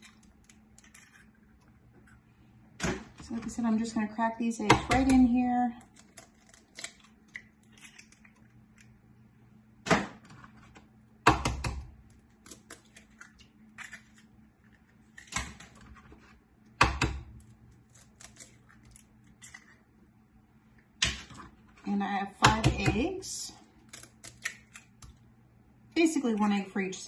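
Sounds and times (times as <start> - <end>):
eggshell crackling apart: 5.8 - 9.1, 12.0 - 15.7, 17.4 - 19.9, 23.7 - 25.2.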